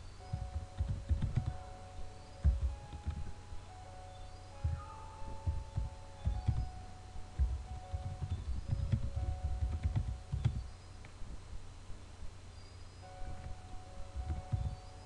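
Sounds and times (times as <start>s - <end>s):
typing on computer keyboard: 0.3s - 1.6s, 2.4s - 3.3s, 5.4s - 6.8s, 7.4s - 10.7s.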